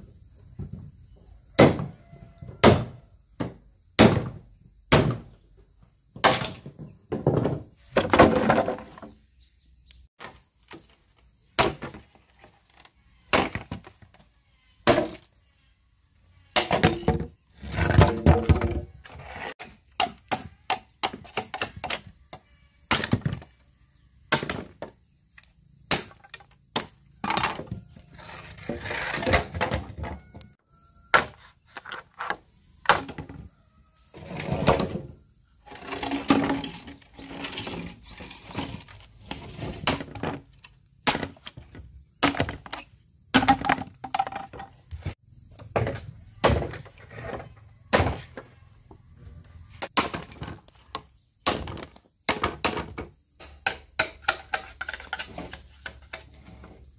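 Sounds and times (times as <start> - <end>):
sharp knocks and thuds: 1.6 - 5.4, 39.7 - 48.5.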